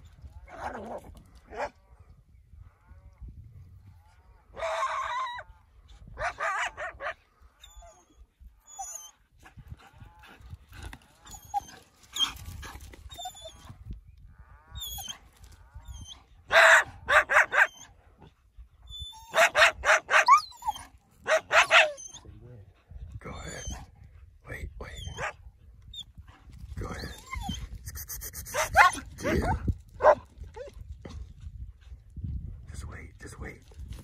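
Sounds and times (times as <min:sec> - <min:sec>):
dog barking: 0:16.5 - 0:17.7, 0:19.3 - 0:20.4, 0:21.2 - 0:22.0, 0:28.5 - 0:30.2.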